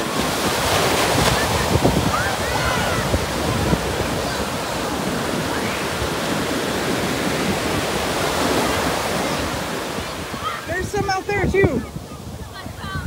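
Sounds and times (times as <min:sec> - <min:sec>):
ocean surf breaking: 0:00.0 - 0:13.0.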